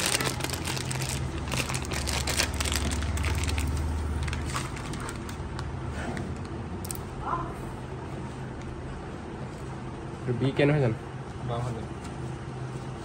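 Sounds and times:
plastic bag crinkling: 0:00.0 - 0:05.8
steady low hum: 0:00.0 - 0:13.0.

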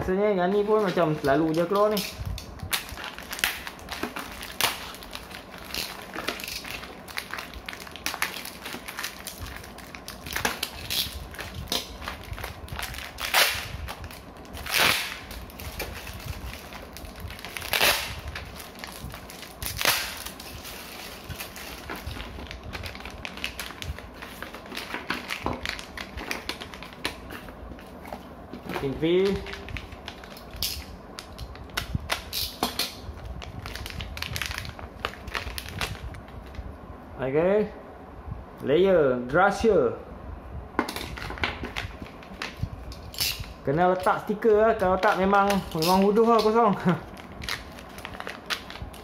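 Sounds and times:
packaging crinkling: 0:00.4 - 0:36.6, 0:41.0 - 0:49.0
loud crumples: 0:45.1 - 0:49.0.

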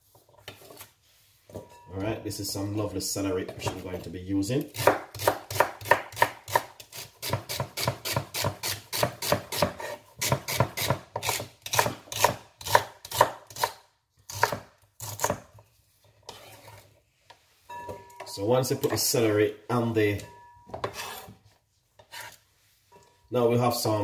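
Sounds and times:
knife chopping on wooden board: 0:04.8 - 0:15.5.

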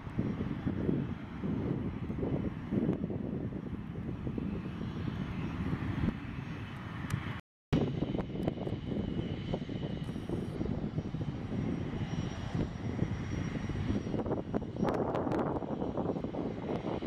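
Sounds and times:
jet engines taxiing: 0:00.0 - 0:17.0.

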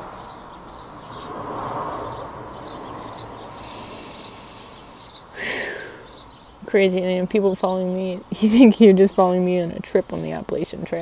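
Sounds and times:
outdoor rushing noise: 0:00.0 - 0:06.2
small bird chirping: 0:00.0 - 0:11.0.

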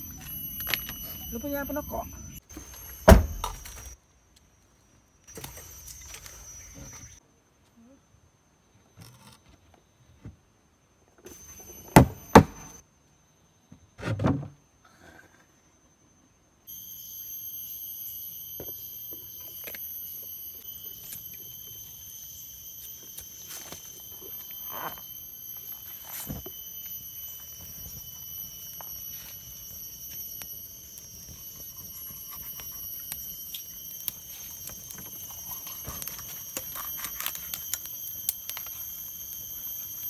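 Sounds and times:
high-pitched drone: 0:00.0 - 0:02.4, 0:16.7 - 0:40.0.

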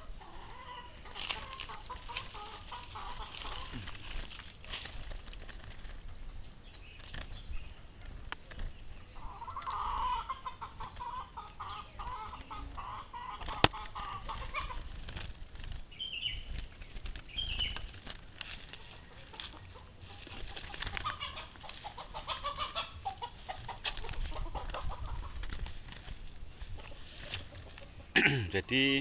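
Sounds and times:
chicken clucking: 0:00.0 - 0:04.9, 0:09.0 - 0:15.0, 0:18.4 - 0:29.0.

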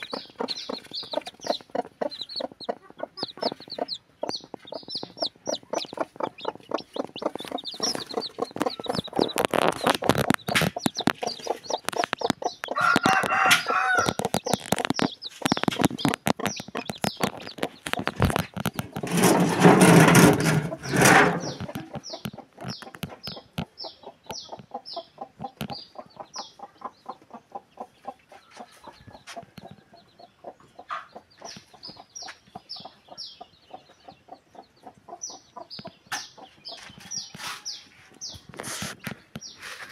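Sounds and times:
chickens clucking: 0:00.0 - 0:39.9
chicks peeping: 0:00.0 - 0:39.9
rooster crowing: 0:12.8 - 0:14.2.

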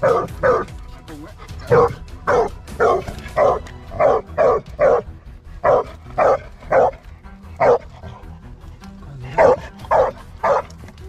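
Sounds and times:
dog barking: 0:00.0 - 0:00.7, 0:01.6 - 0:07.0, 0:07.6 - 0:08.2, 0:09.4 - 0:10.8.

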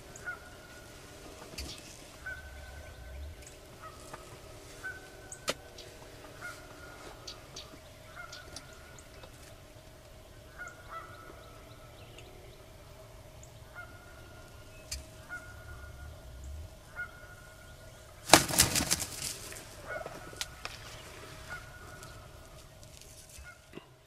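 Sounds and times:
turkey wing flaps: 0:18.2 - 0:22.2.

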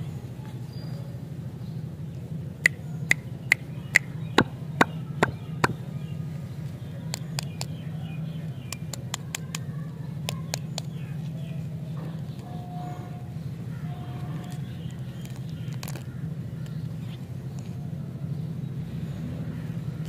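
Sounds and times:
steady low hum: 0:00.0 - 0:20.0
hands tapping lollipops: 0:10.3 - 0:11.0.

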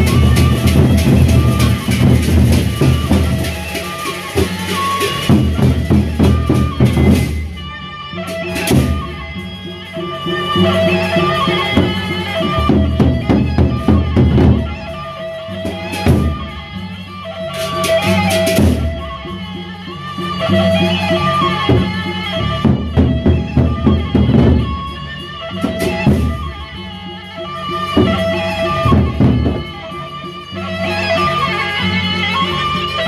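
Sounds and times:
large drums beaten fast: 0:00.0 - 0:07.6, 0:08.5 - 0:09.2, 0:10.6 - 0:16.6, 0:17.5 - 0:19.4, 0:21.4 - 0:26.8, 0:28.0 - 0:30.0
held melody line: 0:00.0 - 0:33.0.

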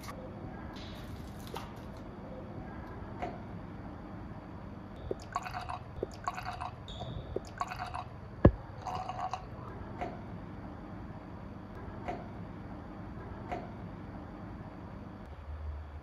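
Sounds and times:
milk glugging while poured: 0:05.0 - 0:08.1, 0:08.8 - 0:09.6.

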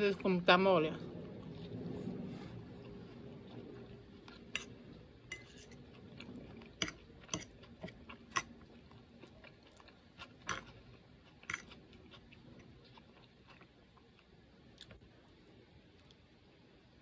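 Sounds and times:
quiet chewing: 0:01.3 - 0:16.3
metal fork clinking on a plate: 0:05.3 - 0:05.8.

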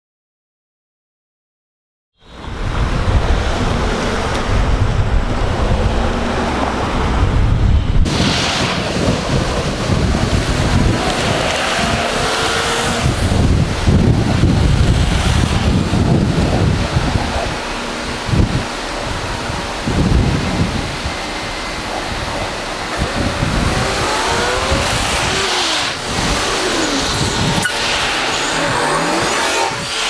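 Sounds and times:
cars passing: 0:02.2 - 0:30.0
wind buffeting microphone: 0:02.3 - 0:30.0.

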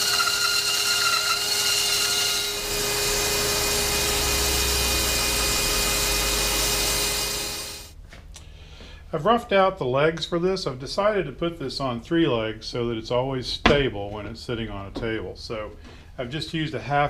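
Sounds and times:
bandsaw cutting wood: 0:00.0 - 0:07.9.

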